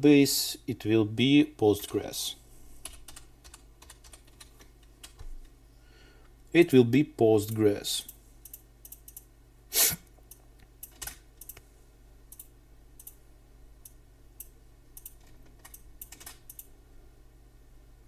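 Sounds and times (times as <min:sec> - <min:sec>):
keyboard keys clicking: 0:02.9 - 0:05.2.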